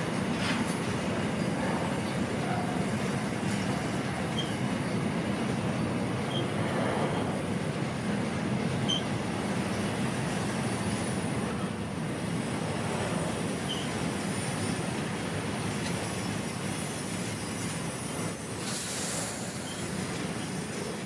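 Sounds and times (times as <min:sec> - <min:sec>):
train wheels on rails: 0:00.0 - 0:21.0.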